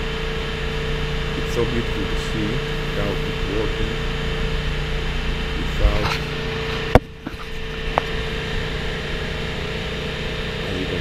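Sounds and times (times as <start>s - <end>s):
engine-room machinery hum: 0.0s - 11.0s.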